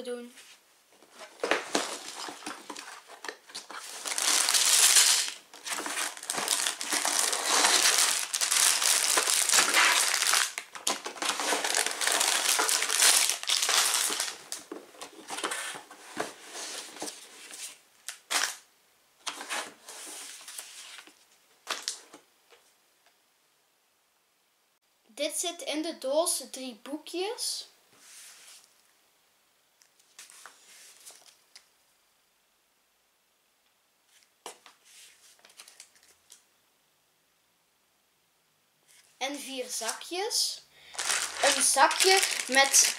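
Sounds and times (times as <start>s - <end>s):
plastic bags crinkling: 1.1s - 15.6s, 40.8s - 42.9s.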